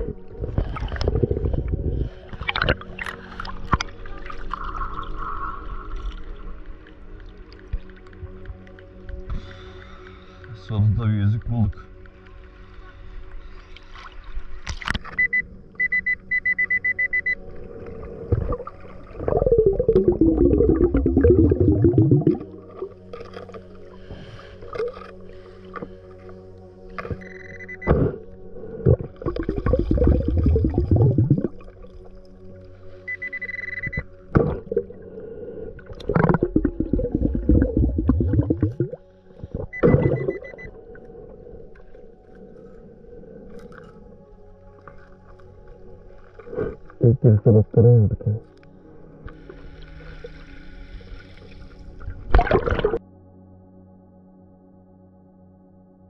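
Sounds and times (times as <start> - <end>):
underwater exhaled air bubbling: 0.0 - 6.0, 17.6 - 25.0, 27.9 - 32.3, 34.0 - 44.2, 46.3 - 48.5, 51.9 - 53.0
metal detector beeps: 15.1 - 17.4, 27.2 - 28.0, 33.1 - 34.1, 39.7 - 40.7.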